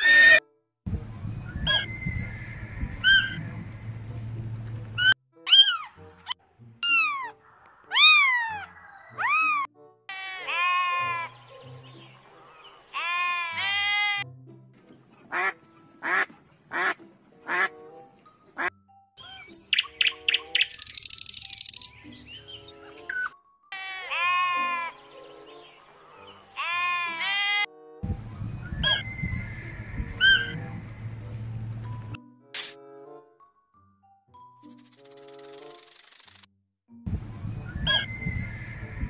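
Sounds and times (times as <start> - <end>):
animal bleats: 10.1 - 11.3, 12.9 - 14.2, 23.7 - 25.0, 26.6 - 27.7
deer calls: 23.7 - 25.0
goat bleating: 23.8 - 24.9, 26.6 - 27.7.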